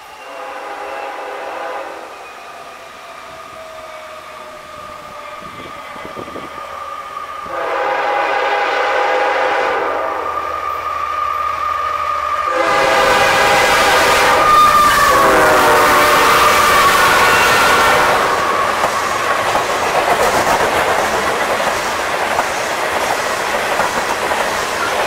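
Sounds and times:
train rumble: 0:00.0 - 0:25.0
locomotive air horn: 0:00.2 - 0:02.1, 0:07.4 - 0:10.4, 0:12.5 - 0:18.7.

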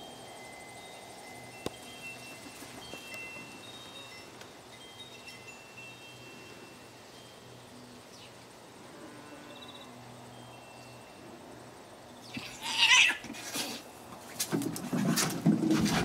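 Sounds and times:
cat hissing screech: 0:12.3 - 0:13.8
cats scuffling and thumping: 0:12.3 - 0:16.0.

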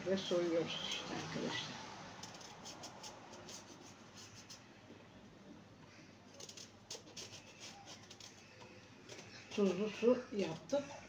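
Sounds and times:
vegetable peeler scraping: 0:02.2 - 0:04.6, 0:06.3 - 0:11.0.

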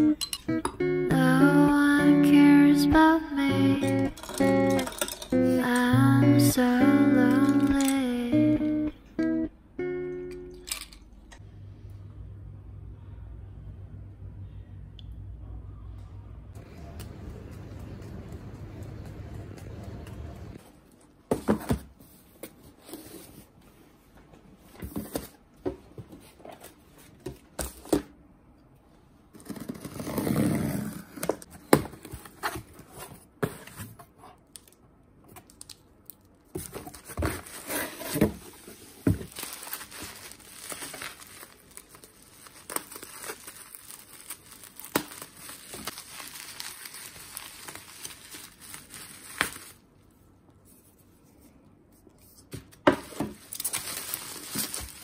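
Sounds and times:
plastic crinkling: 0:38.6 - 0:49.9, 0:53.1 - 0:55.0
packing tape tearing: 0:39.3 - 0:49.8.

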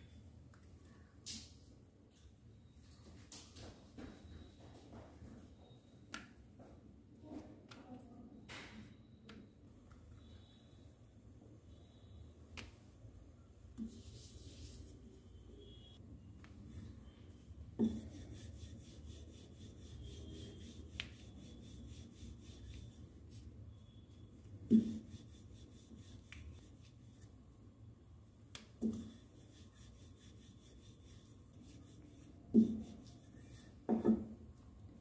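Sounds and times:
rolling pin rubbing on dough: 0:13.8 - 0:15.1, 0:16.5 - 0:27.4, 0:28.7 - 0:34.4.

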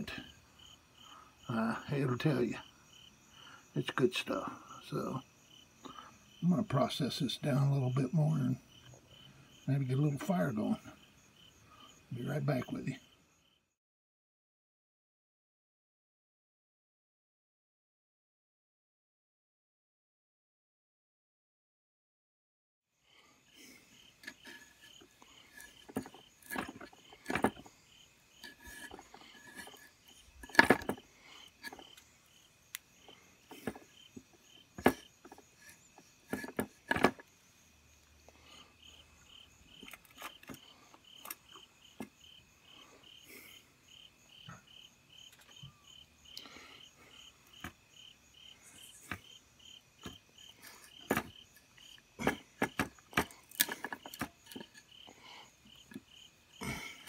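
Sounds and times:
crickets chirping: 0:00.0 - 0:13.8, 0:23.0 - 0:57.0
wood sticks clicking and knocking: 0:24.2 - 0:27.7, 0:28.4 - 0:32.1, 0:34.8 - 0:37.2, 0:50.0 - 0:55.1.

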